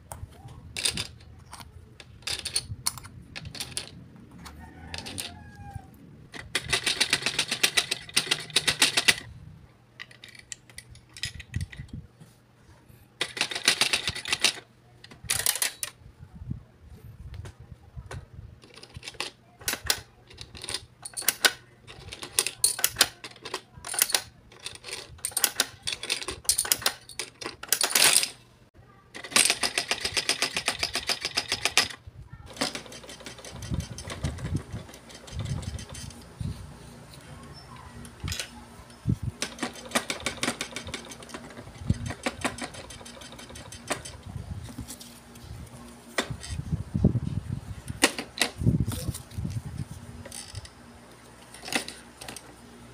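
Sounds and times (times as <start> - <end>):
plastic toy clicks and clatters: 0.8 - 4.0, 4.9 - 5.4, 6.3 - 9.3, 10.0 - 12.0, 13.2 - 16.0, 18.1 - 28.4, 29.1 - 36.2, 38.0 - 38.6, 39.4 - 44.2, 47.9 - 49.5, 50.2 - 50.7, 51.4 - 52.5
fast mechanical ticking: 6.3 - 9.3, 29.2 - 36.2, 39.4 - 44.3.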